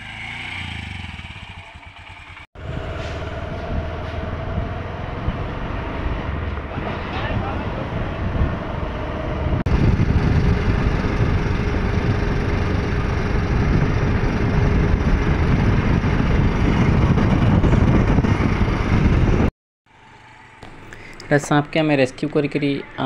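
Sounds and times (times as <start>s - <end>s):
motorcycle engine running: 0.0s - 5.6s, 8.2s - 19.5s
wind rushing over microphone: 2.6s - 19.5s.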